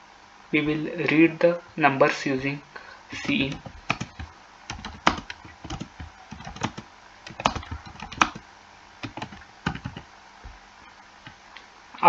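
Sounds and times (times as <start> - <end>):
typing on keyboard: 3.2 - 8.4, 9.0 - 10.0.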